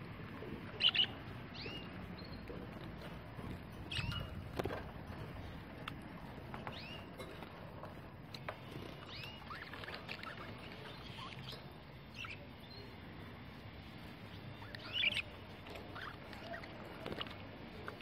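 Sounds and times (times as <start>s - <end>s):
budgerigars chirping: 0.7s - 4.8s, 6.6s - 7.2s, 8.8s - 12.6s, 14.2s - 17.4s.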